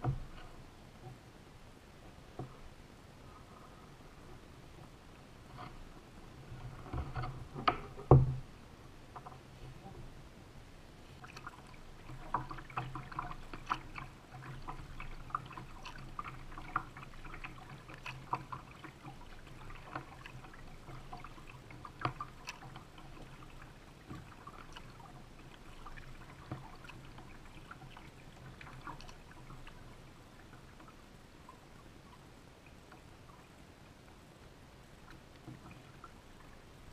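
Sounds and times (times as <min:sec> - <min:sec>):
water dripping and splashing on hull: 0:00.0 - 0:01.3, 0:11.0 - 0:36.9
low steady hum: 0:00.0 - 0:36.9.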